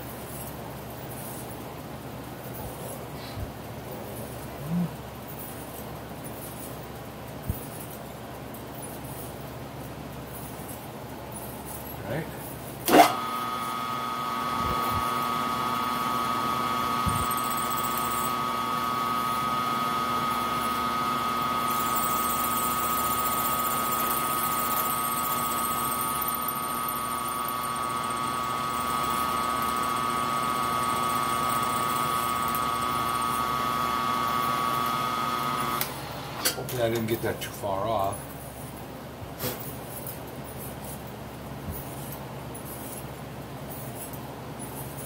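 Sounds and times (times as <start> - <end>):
milling machine spindle whine: 12.9 - 36.5.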